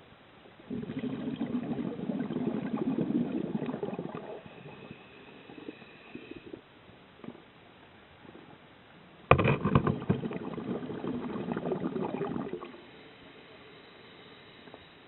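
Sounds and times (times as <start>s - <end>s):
air bubbling from diver's regulator: 0.6s - 6.6s, 9.3s - 13.1s.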